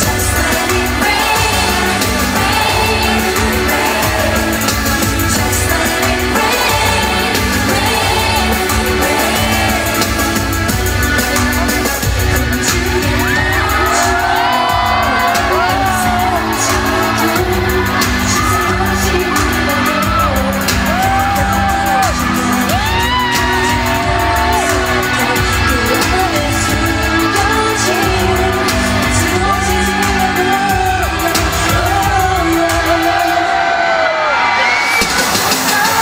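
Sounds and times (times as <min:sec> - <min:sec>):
woman singing into microphone: 0:00.0 - 0:34.0, 0:35.5 - 0:36.0
backing music: 0:00.0 - 0:36.0.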